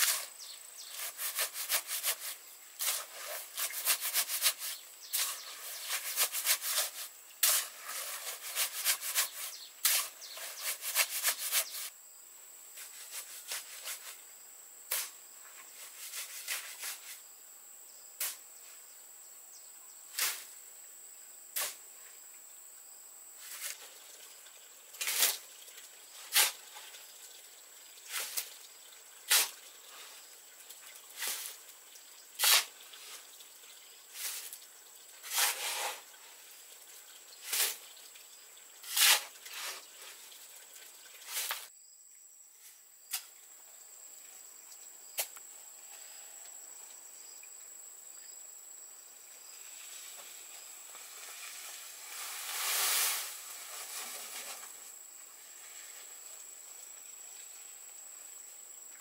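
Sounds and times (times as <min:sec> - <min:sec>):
hoe scraping wet concrete: 0:00.0 - 0:11.9, 0:15.8 - 0:17.2, 0:26.2 - 0:26.8, 0:28.1 - 0:28.5, 0:31.2 - 0:31.6, 0:32.4 - 0:33.2, 0:34.1 - 0:34.6, 0:35.2 - 0:36.5, 0:37.4 - 0:37.8, 0:38.8 - 0:40.3, 0:50.9 - 0:54.8
shovel scraping and knocking: 0:00.0 - 0:11.9, 0:12.8 - 0:14.2, 0:14.9 - 0:17.2, 0:23.4 - 0:24.0, 0:25.0 - 0:25.4, 0:26.2 - 0:26.9, 0:29.3 - 0:30.2, 0:31.2 - 0:31.6, 0:32.4 - 0:33.2, 0:34.2 - 0:34.6, 0:35.2 - 0:36.1, 0:37.4 - 0:37.8, 0:38.8 - 0:40.2, 0:41.2 - 0:41.7, 0:50.9 - 0:54.9
high insect whine: 0:00.0 - 0:59.0.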